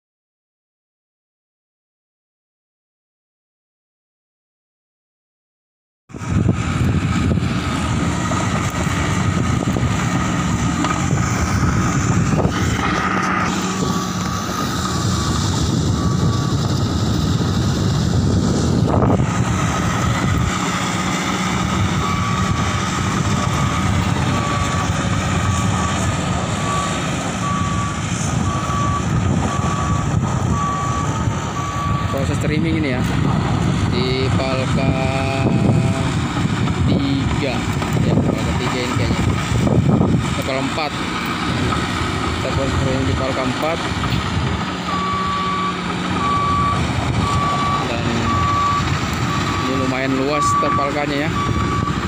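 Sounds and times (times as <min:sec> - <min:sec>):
heavy machinery diesel engines: 0:06.1 - 0:52.0
reversing alarm beeping: 0:13.4 - 0:16.9, 0:21.2 - 0:33.0, 0:44.8 - 0:52.0.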